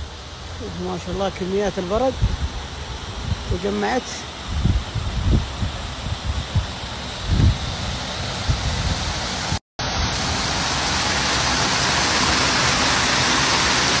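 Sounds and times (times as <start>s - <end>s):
running water: 0.0s - 14.0s
wind thumps on microphone: 2.2s - 3.6s, 4.4s - 9.6s
hail and rain rushing: 10.2s - 14.0s.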